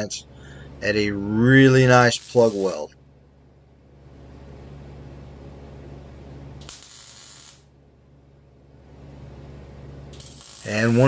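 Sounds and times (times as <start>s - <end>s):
welder crackling buzz: 1.5s - 2.9s, 6.6s - 7.8s, 10.1s - 11.0s
welder hiss: 1.8s - 2.9s, 6.6s - 7.6s, 10.2s - 11.0s.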